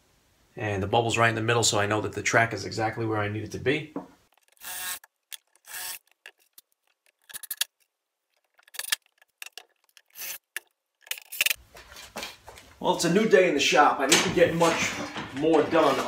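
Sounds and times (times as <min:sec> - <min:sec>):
cordless drill driving screws: 0:04.5 - 0:06.1, 0:10.2 - 0:10.4.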